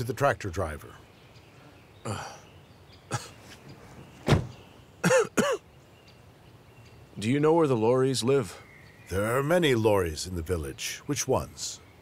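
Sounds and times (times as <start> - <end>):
throat clearing: 3.1 - 3.4, 5.0 - 5.6
car door shutting: 3.9 - 4.6.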